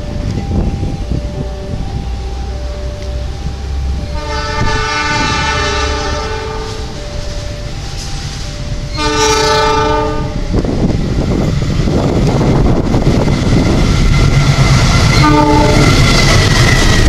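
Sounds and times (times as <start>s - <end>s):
train horn blasts: 1.3s - 10.6s, 15.0s - 16.3s.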